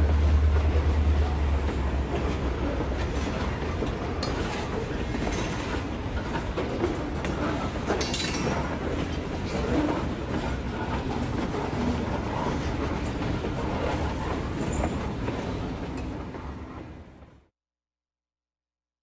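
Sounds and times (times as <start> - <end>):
model train wheels clattering on rails: 1.6 - 16.4.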